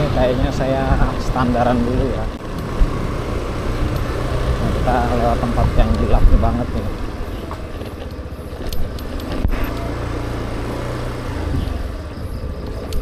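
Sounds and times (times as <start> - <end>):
road and wind noise: 0.0 - 13.0
scooter engine running: 0.0 - 13.0.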